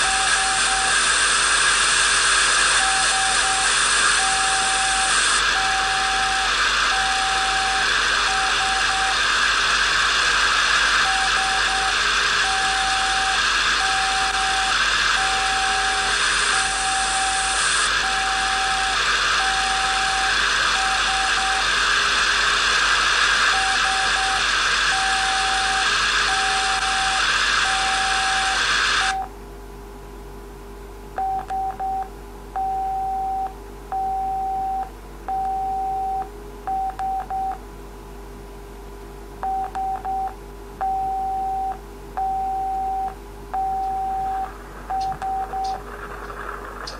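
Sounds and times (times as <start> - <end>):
loud static hiss: 0.0 - 29.2, 43.1 - 46.9
morse code beeping: 39.4 - 45.8.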